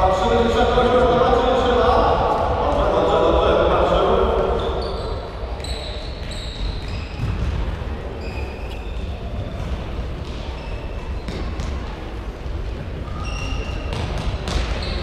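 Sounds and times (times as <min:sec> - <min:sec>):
footballs kicked and bouncing: 0:06.2 - 0:12.6, 0:13.9 - 0:15.0
crowd murmur: 0:07.2 - 0:15.0
short high squeaks: 0:08.2 - 0:09.2.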